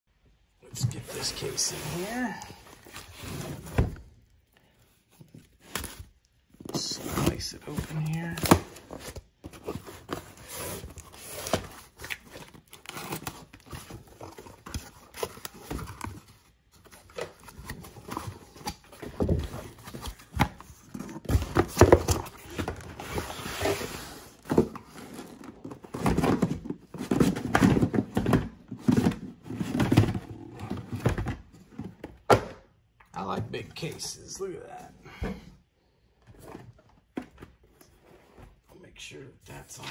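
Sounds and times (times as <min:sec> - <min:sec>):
cardboard scraping and tearing: 0:00.9 - 0:04.0, 0:06.7 - 0:16.2
boxes thunking on desk: 0:25.7 - 0:32.7.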